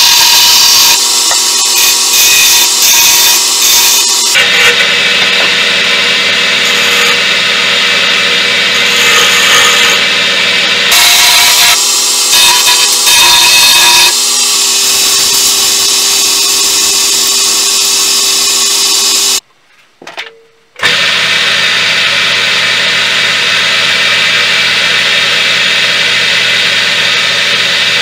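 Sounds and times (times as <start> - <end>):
sandpaper hissing on spinning wood: 0.0 - 5.0, 10.9 - 19.4
lathe motor hum: 0.0 - 19.4, 20.8 - 28.0.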